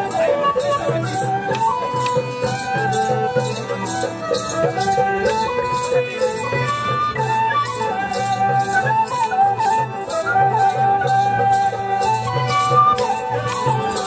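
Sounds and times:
rattling percussion: 0.0s - 14.0s
wavering folk melody: 0.0s - 14.0s.

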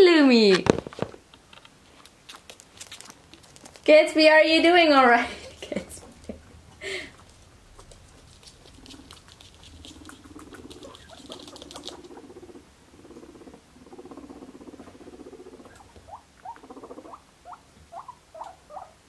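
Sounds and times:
guinea pig pulsing rumble: 2.0s - 19.0s
guinea pig rising squeaks: 7.8s - 19.0s.

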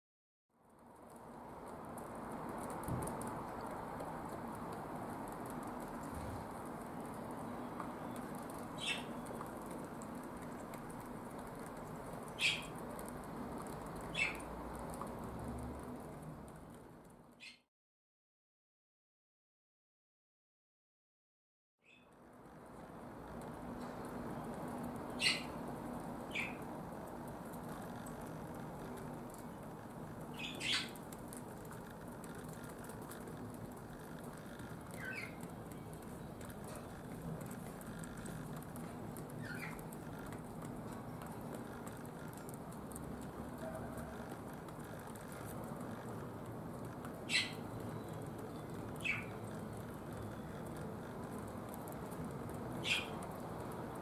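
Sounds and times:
young pigeon squeaking: 8.8s - 9.2s, 12.3s - 12.7s, 14.1s - 14.5s, 25.2s - 25.6s, 30.4s - 31.0s, 39.4s - 39.8s, 47.3s - 47.6s, 49.0s - 49.4s, 52.8s - 53.2s.

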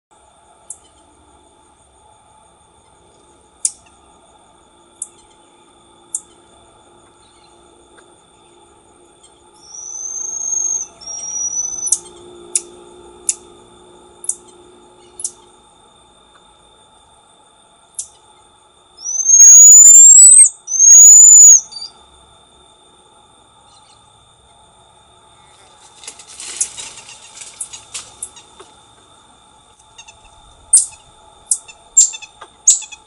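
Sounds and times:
marmoset high chirps: 9.6s - 12.1s, 19.0s - 21.9s, 30.0s - 33.0s
marmoset long whistled calls: 9.6s - 12.1s, 19.0s - 22.0s, 30.7s - 33.0s.

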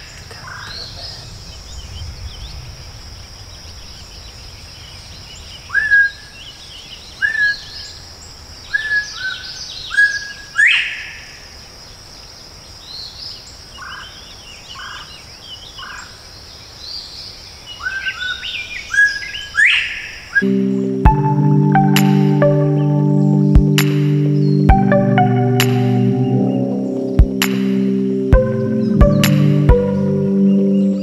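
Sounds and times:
insect drone: 0.0s - 6.5s
small birds chirping: 0.0s - 31.0s.

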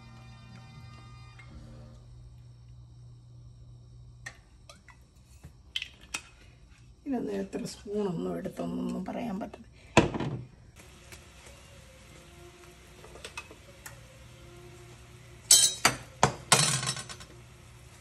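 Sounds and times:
spoon and dishes clinking: 15.5s - 17.4s.

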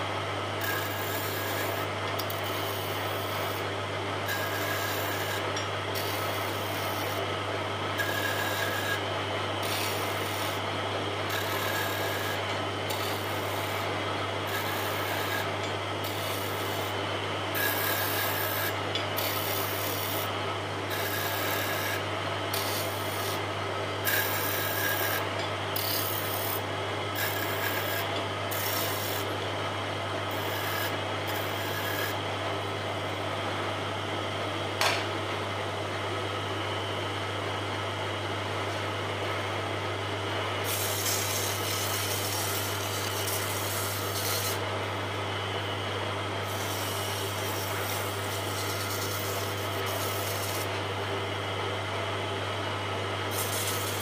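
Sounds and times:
chisel scraping spinning wood: 0.6s - 7.2s, 8.0s - 10.6s, 11.2s - 20.3s, 20.9s - 23.4s, 24.0s - 26.6s, 27.2s - 29.4s, 40.6s - 44.7s, 46.4s - 50.8s, 53.3s - 54.0s
wood lathe humming: 0.6s - 7.3s, 7.9s - 23.4s, 24.0s - 29.5s, 30.2s - 32.2s, 40.6s - 45.8s, 46.4s - 50.9s.

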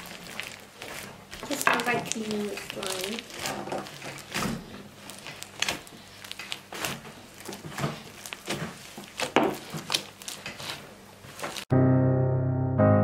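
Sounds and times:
crunchy slime being squeezed: 0.0s - 11.6s
piano music: 11.7s - 13.0s.

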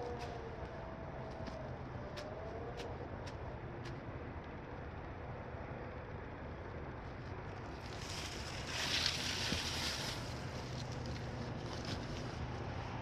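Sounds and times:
low outdoor rumble: 0.0s - 13.0s
shrub leaves rustling: 7.2s - 13.0s.

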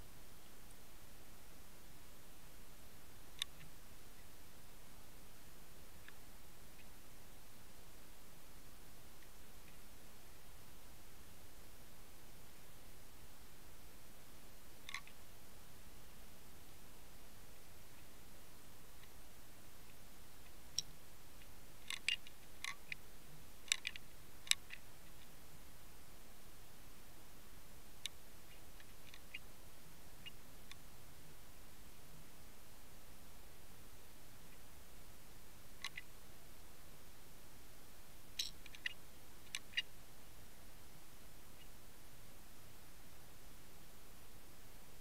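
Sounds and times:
sharp underwater clicks: 3.3s - 3.7s, 14.8s - 15.2s, 19.9s - 23.0s, 23.6s - 25.3s, 35.8s - 36.1s, 38.4s - 39.9s
sharp clicks: 38.4s - 39.9s.

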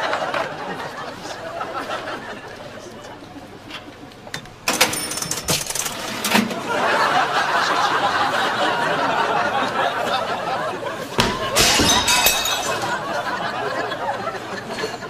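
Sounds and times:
crowd laughter and chatter: 0.0s - 4.6s, 6.4s - 15.0s
cash register beeps: 4.6s - 6.5s
cash register key clicks: 4.6s - 6.5s.

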